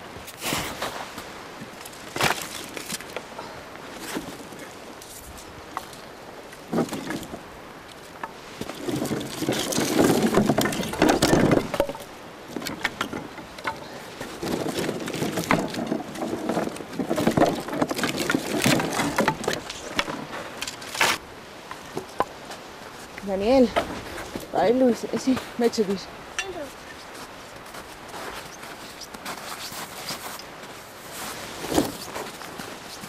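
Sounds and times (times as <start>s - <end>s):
twigs rustling: 0.2s - 33.0s
firewood clattering: 1.6s - 22.6s.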